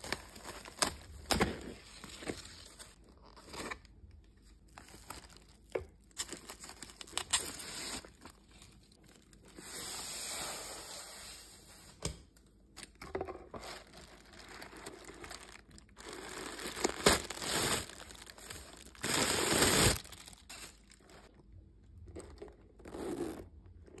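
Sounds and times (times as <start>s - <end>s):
tissue paper crinkling and rustling: 13.6s - 21.3s.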